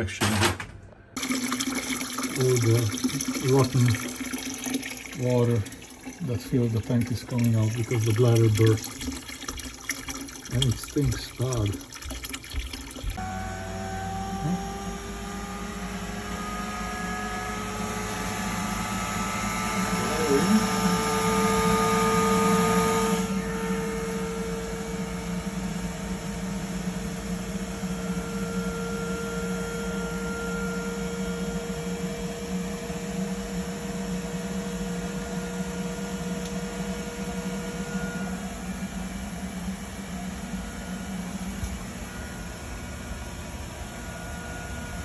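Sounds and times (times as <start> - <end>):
boiler humming: 1.2 - 45.0
blower whining: 13.0 - 45.0.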